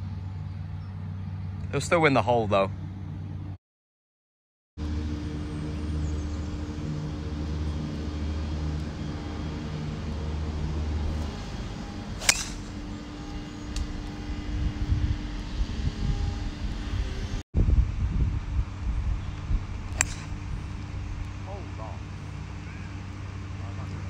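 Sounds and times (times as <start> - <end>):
motor hum: 4.8 - 24.0
wind buffeting microphone: 5.4 - 23.6
sharp click: 12.2 - 12.6, 20.0 - 20.3.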